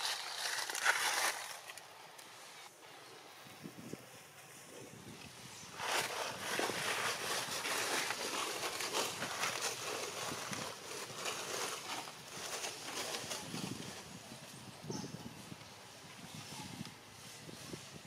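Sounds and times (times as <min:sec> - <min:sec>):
dry leaves crackling: 0:00.0 - 0:02.6, 0:05.6 - 0:14.6.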